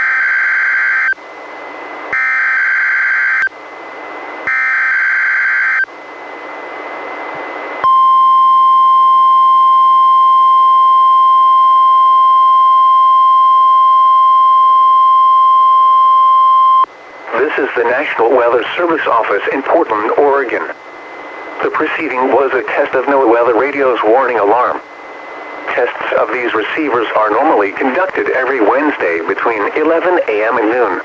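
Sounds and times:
high alarm tone: 0.0s - 1.2s, 2.1s - 3.5s, 4.4s - 5.9s, 7.8s - 16.9s
static hiss: 16.9s - 31.0s.

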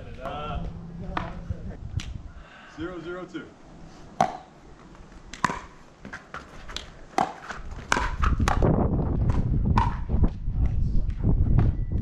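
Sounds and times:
loud low rumble: 0.0s - 2.0s
shoes scuffing on court tiles: 4.1s - 8.4s
paddles striking ball: 4.2s - 4.5s, 5.3s - 10.1s.

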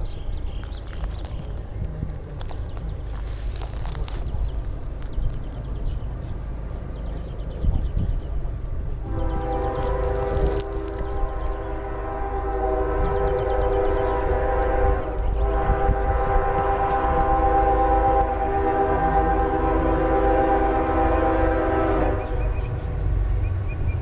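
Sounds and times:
locomotive air horn blowing a chord: 9.0s - 22.8s.

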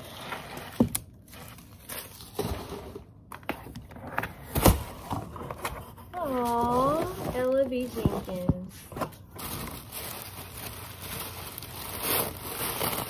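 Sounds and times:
paper and ribbon rustling: 5.8s - 13.0s.

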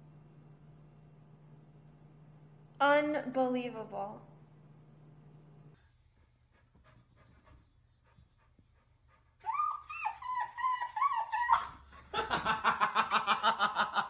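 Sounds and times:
dog yipping: 9.4s - 11.8s
dog whining: 9.4s - 12.0s.

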